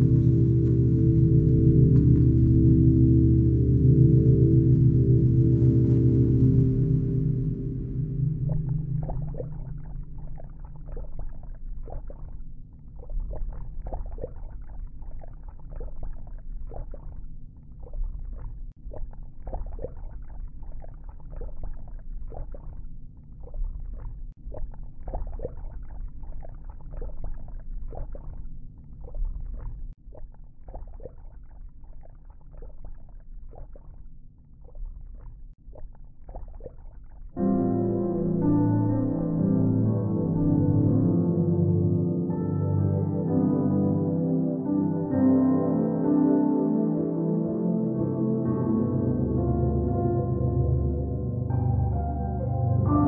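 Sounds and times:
steady low rumble: 0:00.0 - 0:26.2
crackles and clicks: 0:00.0 - 0:38.5.

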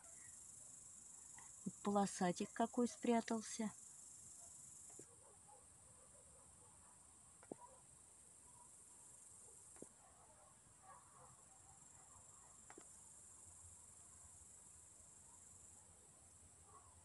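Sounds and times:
crickets trilling: 0:00.0 - 0:05.4
faint clicks: 0:12.6 - 0:13.0.

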